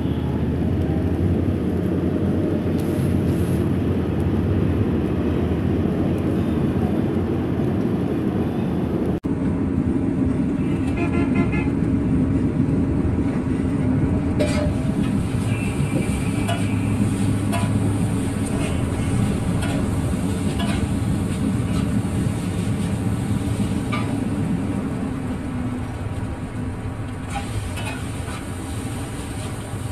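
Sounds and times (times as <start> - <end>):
street traffic rumble: 0.0 - 29.9
spatula scraping on iron griddle: 14.4 - 15.4, 16.4 - 24.2.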